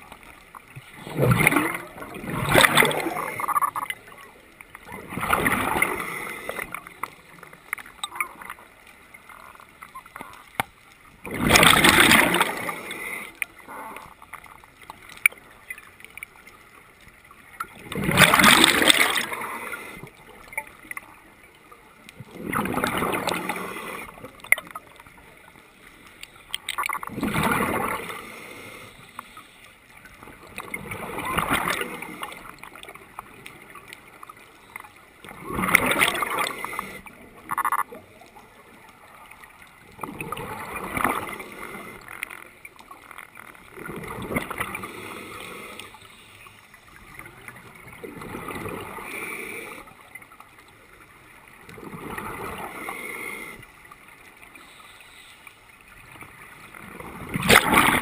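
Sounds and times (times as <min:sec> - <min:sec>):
exhaled bubbles rushing underwater: 0:00.7 - 0:10.5, 0:11.2 - 0:21.0, 0:22.1 - 0:25.4, 0:26.7 - 0:28.5, 0:30.0 - 0:34.5, 0:35.2 - 0:42.1, 0:42.7 - 0:45.8, 0:46.8 - 0:53.5, 0:55.8 - 0:58.0
faint clicks: 0:02.6 - 0:04.9, 0:05.5 - 0:11.3, 0:12.5 - 0:17.9, 0:23.2 - 0:27.2, 0:27.9 - 0:51.8.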